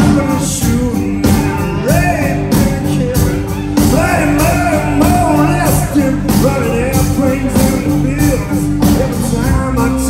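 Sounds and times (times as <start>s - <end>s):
bass guitar: 0.0s - 10.0s
electric guitars: 0.0s - 10.0s
man singing: 0.0s - 10.0s
steady drum beat: 0.0s - 10.0s.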